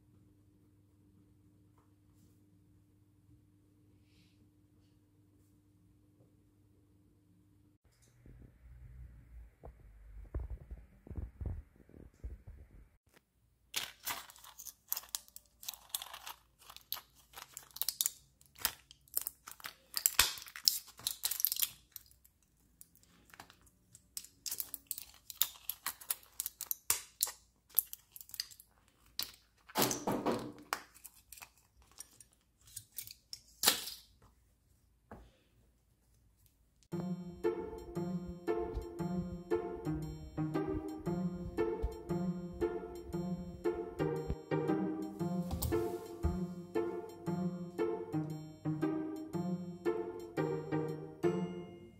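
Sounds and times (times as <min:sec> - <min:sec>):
blister pack crinkling and tearing: 0:13.7 - 0:30.0, 0:30.6 - 0:34.1.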